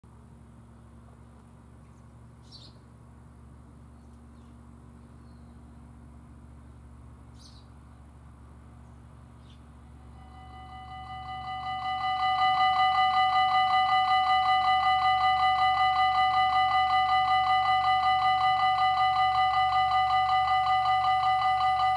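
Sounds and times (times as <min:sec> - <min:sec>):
level crossing warning bell: 0:10.0 - 0:21.9.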